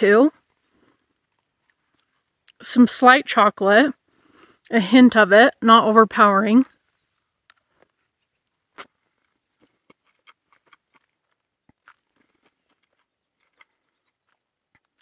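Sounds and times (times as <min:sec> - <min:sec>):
chewing and slurping noodles: 0:00.3 - 0:02.6, 0:06.8 - 0:15.0.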